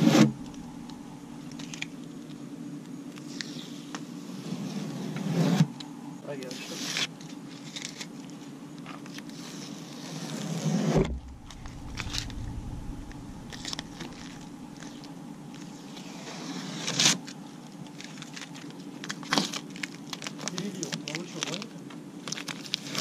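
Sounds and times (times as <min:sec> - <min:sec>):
steady low hum: 0:00.0 - 0:06.3, 0:10.7 - 0:16.8
tape crinkling: 0:17.8 - 0:23.0.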